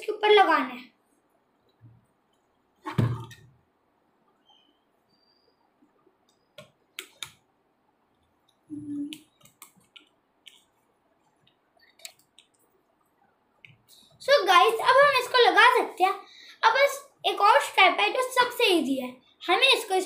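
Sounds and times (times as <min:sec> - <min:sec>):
thump: 0:02.9 - 0:03.5.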